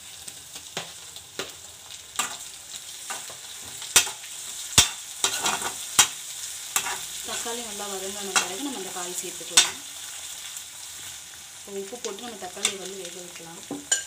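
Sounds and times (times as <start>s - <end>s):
tomatoes sizzling in hot oil: 0.0s - 14.0s
metal spatula knocking pan: 4.8s - 6.2s.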